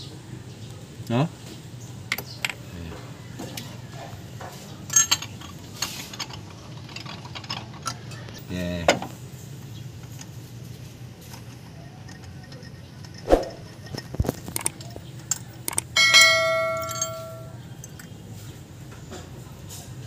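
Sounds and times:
socket clinking and ringing: 4.9 - 5.6, 15.7 - 17.6.

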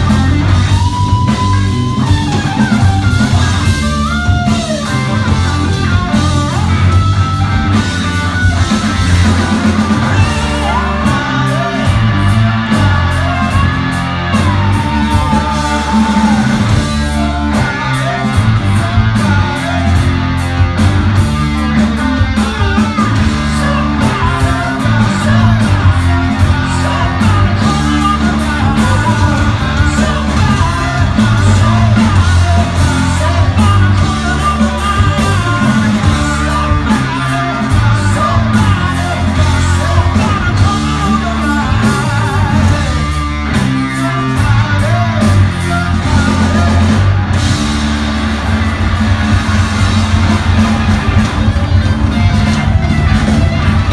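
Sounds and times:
person singing: 0.0 - 47.8
live rock band playing: 0.0 - 53.9.

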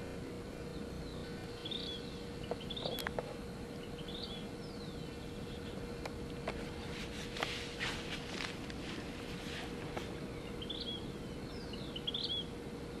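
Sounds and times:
faint hum: 0.0 - 13.0
rustling crackles: 5.8 - 10.3.

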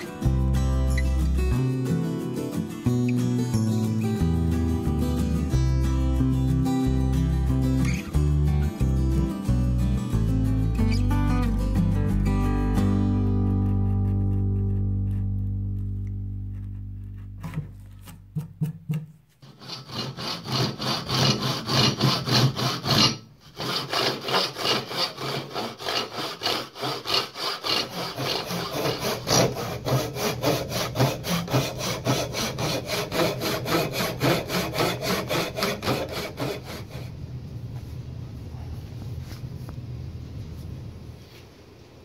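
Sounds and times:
hand saw cutting wood: 16.4 - 37.1.

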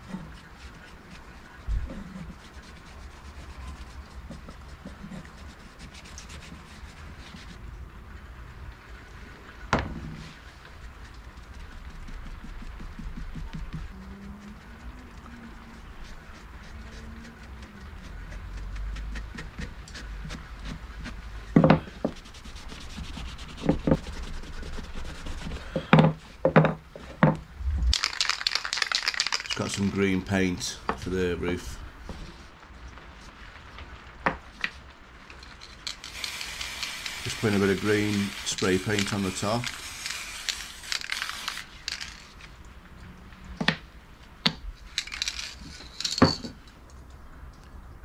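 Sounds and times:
cloth rubbing wood: 21.8 - 26.4, 35.6 - 42.3
spray paint can hissing: 27.9 - 29.8, 35.8 - 42.3, 45.0 - 45.7
paper crinkling: 27.9 - 30.0, 35.4 - 42.5, 44.9 - 46.2.

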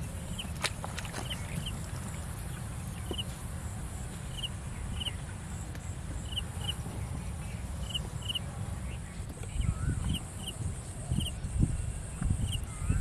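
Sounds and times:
steady low rumble: 0.0 - 13.0
bird chirping: 4.3 - 13.0.

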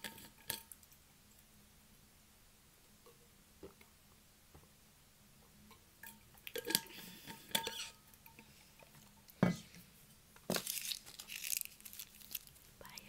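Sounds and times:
rustling: 6.5 - 13.0
small hard objects clicking: 10.5 - 13.0.

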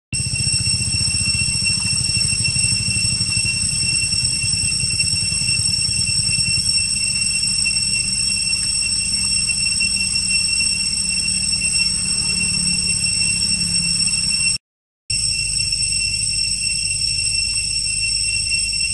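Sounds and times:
low pulsing engine-like rumble: 0.2 - 14.4
high-pitched whine: 0.2 - 18.9.

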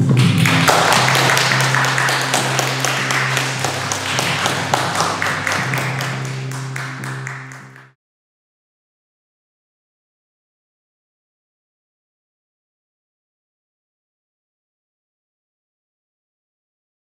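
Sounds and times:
hands clapping: 0.0 - 8.0
music holding a low note: 0.0 - 8.0.

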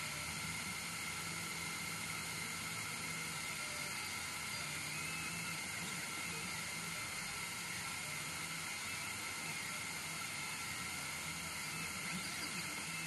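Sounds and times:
laser engraver hiss and whine: 0.0 - 13.0.

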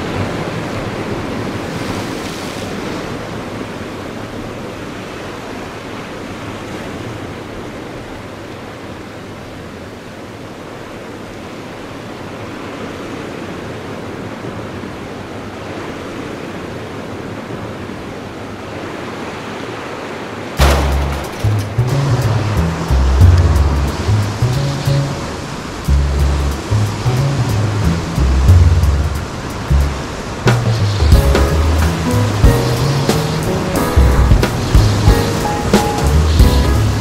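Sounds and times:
ocean surf washing: 0.0 - 37.0
loud thump: 20.6 - 21.8.

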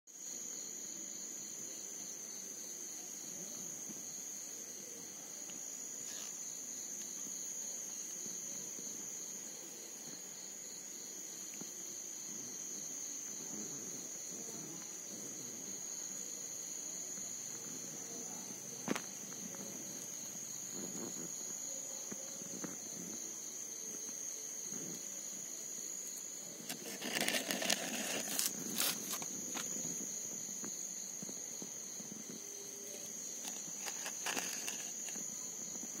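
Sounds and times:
crickets trilling: 0.2 - 36.0
rustling: 26.6 - 30.1, 33.0 - 35.4.

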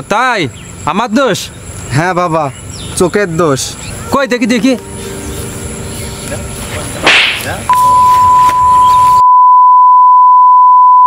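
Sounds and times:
sharp whack sound effect: 7.0 - 7.6
high-pitched electronic beep: 7.7 - 11.0.

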